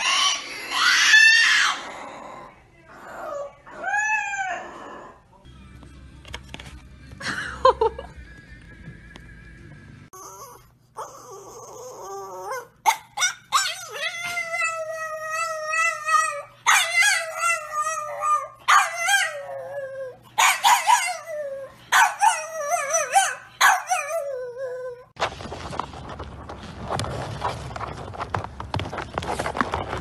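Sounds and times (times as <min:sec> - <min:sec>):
dog whining: 0:10.1 - 0:25.1.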